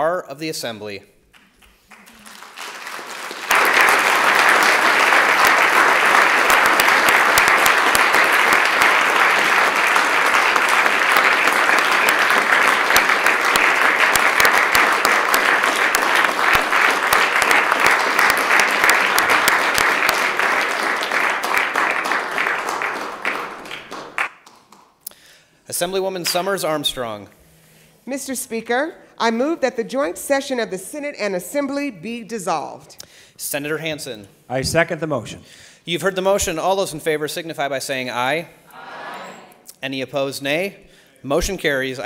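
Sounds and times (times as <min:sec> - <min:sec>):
crowd applauding: 0:01.3 - 0:24.9.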